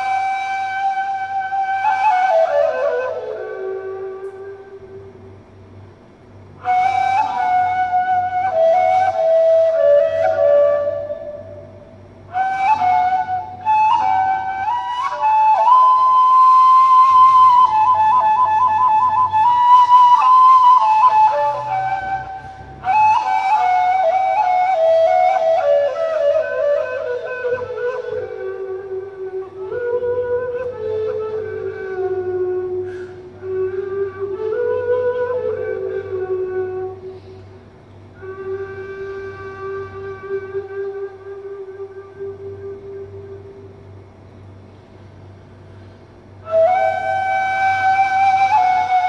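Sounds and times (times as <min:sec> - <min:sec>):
reed flute slow melody: 0:00.0 - 0:44.5, 0:45.1 - 0:49.0.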